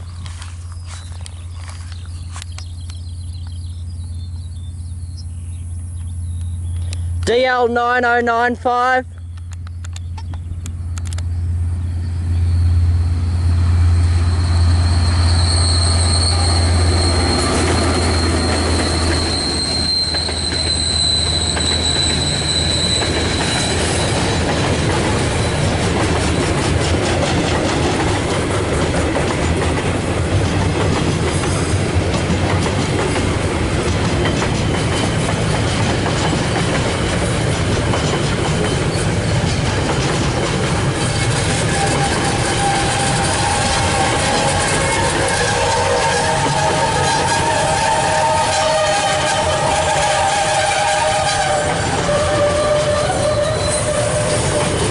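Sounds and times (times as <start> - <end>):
locomotive engine hum: 0.0 - 54.9
train wheels rumbling and clattering: 9.2 - 54.9
high wheel squeal: 11.9 - 26.8, 38.0 - 39.8, 41.0 - 54.9.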